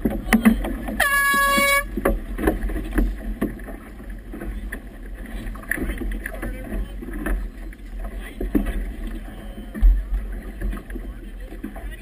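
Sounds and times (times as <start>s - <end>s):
choppy water splashing: 0.0s - 12.0s
air horn blast: 1.0s - 1.9s.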